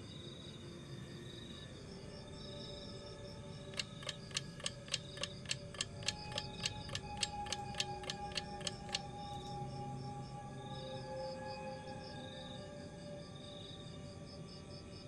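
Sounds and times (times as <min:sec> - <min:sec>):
crickets chirping: 0:00.0 - 0:15.0
sharp ticks: 0:03.7 - 0:09.5.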